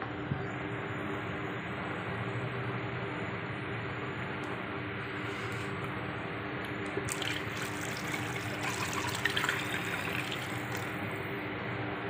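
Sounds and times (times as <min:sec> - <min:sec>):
water pouring into pot: 0:07.1 - 0:11.0.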